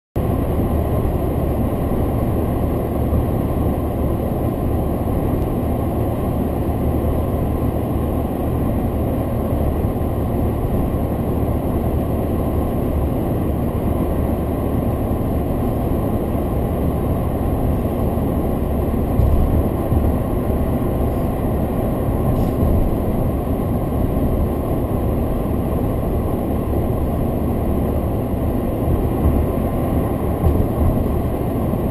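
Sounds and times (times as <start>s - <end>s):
car cabin road noise: 0.2s - 31.9s
car bumps: 19.0s - 20.4s, 28.9s - 31.4s.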